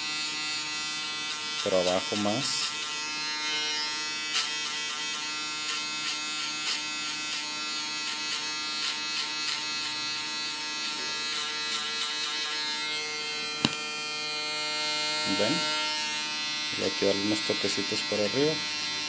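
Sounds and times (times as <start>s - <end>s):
foil shaver buzzing: 0.0s - 19.0s
shaver scratching on hair: 0.0s - 19.0s.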